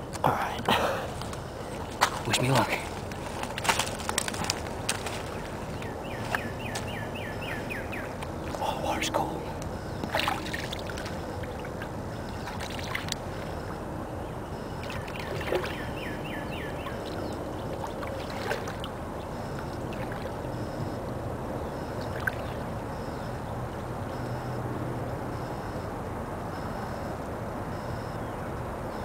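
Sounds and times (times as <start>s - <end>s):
water sloshing around legs: 0.9s - 8.8s, 9.7s - 13.9s, 14.5s - 21.0s.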